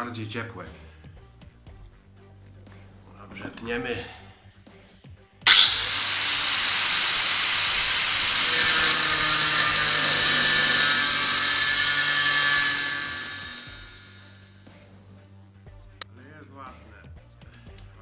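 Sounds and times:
angle grinder cutting steel: 0:05.5 - 0:14.6.

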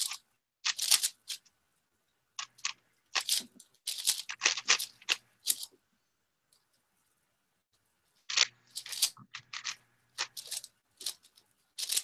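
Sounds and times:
puzzle cube plastic clacking: 0:00.0 - 0:01.5, 0:02.4 - 0:05.8, 0:08.2 - 0:12.0.

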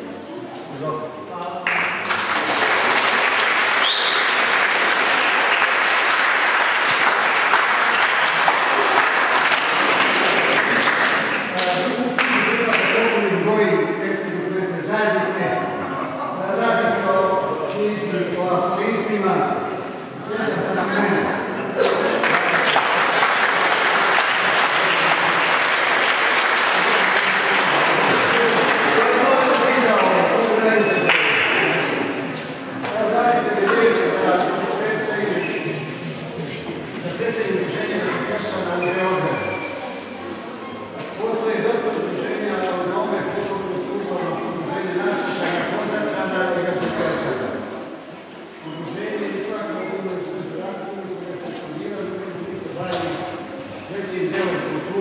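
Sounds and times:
crowd applauding: 0:01.6 - 0:13.0, 0:21.8 - 0:31.9.

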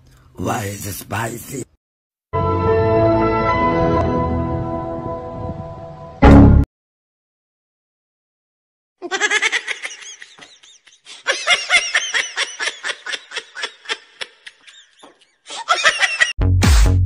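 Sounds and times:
high-pitched giggling: 0:09.0 - 0:16.3.

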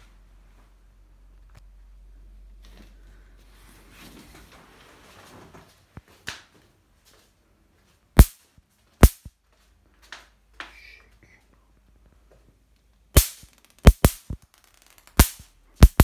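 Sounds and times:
rustling handling noise: 0:02.6 - 0:10.1
electric swatter zapping: 0:08.2 - 0:08.4, 0:09.0 - 0:09.3, 0:13.2 - 0:16.0.

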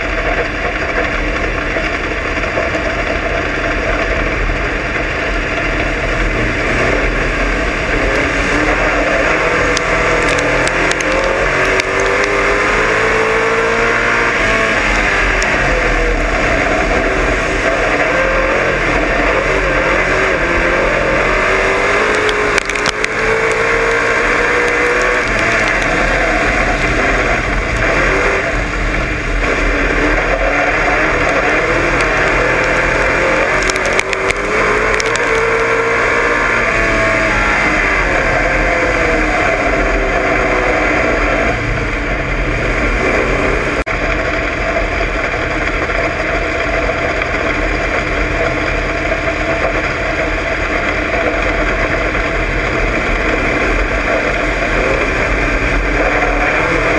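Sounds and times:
race car engine revving: 0:00.0 - 0:56.9
rough rattle of car: 0:00.0 - 0:56.9
sharp clatters: 0:20.4 - 0:36.8.

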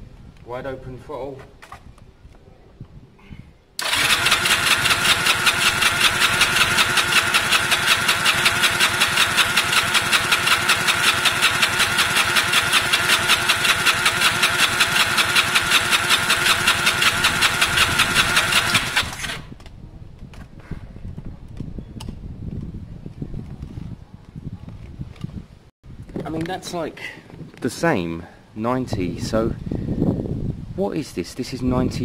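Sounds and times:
engine cranking by starter: 0:03.8 - 0:19.6.

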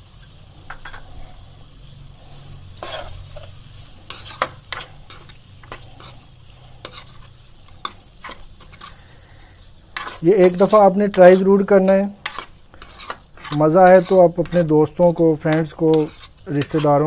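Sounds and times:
light sizzle of frying: 0:00.0 - 0:17.0
plastic spoon scraping wok: 0:02.8 - 0:09.1, 0:09.9 - 0:17.0.

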